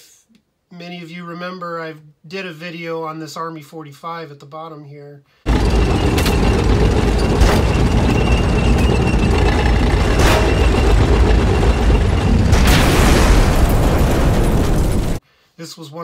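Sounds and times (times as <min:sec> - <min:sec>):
explosion: 0:05.5 - 0:15.2
tank deep rumble: 0:05.5 - 0:15.2
gunfire cracks: 0:12.5 - 0:15.2.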